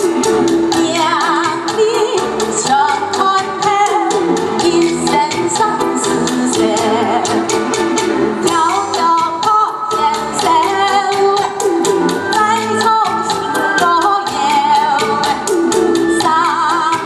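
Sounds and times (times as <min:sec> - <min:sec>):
amplified backing music with beat: 0:00.0 - 0:17.0
woman singing into microphone: 0:00.7 - 0:07.5, 0:08.4 - 0:17.0.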